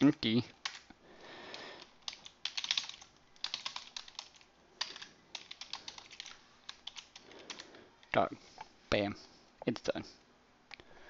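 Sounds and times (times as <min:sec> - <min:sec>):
computer keyboard typing: 0:01.5 - 0:07.7.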